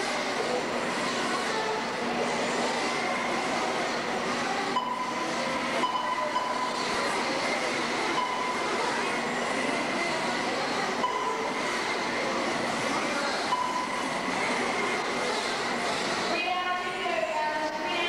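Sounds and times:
high steady tone: 4.7 - 7.1, 8.0 - 9.1, 11.0 - 11.8, 13.5 - 14.4.

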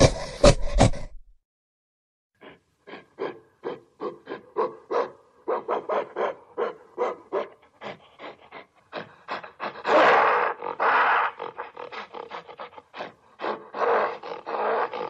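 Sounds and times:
gorilla calling and roaring: 0.0 - 1.2, 2.4 - 15.0.

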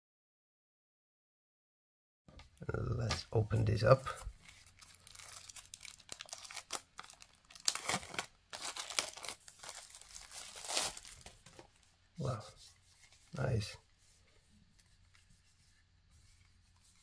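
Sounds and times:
plastic wrap crinkling and tearing: 4.0 - 12.3.

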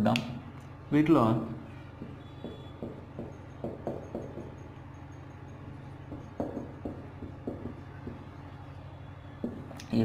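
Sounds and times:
steady low hum: 0.0 - 9.9
marker squeaking on whiteboard: 2.0 - 9.8.

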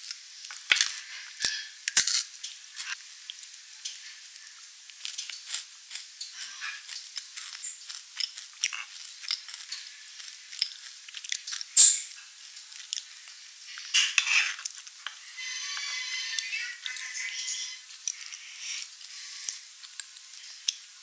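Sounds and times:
chewing crunchy food: 0.0 - 21.0
metal spoon scraping a cone: 5.4 - 10.9, 13.8 - 19.6.

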